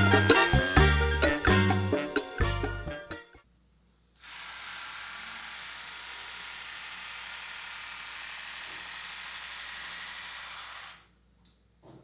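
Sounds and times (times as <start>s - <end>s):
electric hair trimmer whirring: 4.2s - 11.1s.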